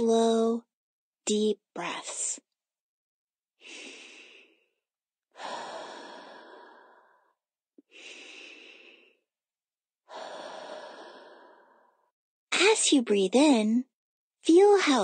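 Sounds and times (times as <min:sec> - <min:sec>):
person breathing deeply: 0:03.6 - 0:09.3, 0:10.1 - 0:12.1.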